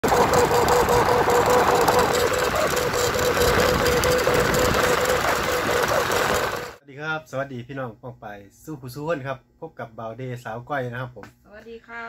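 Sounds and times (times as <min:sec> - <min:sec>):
kite hummer drone: 0:00.0 - 0:06.8
scooter running: 0:00.0 - 0:06.8
wind rush on microphone: 0:00.0 - 0:06.8.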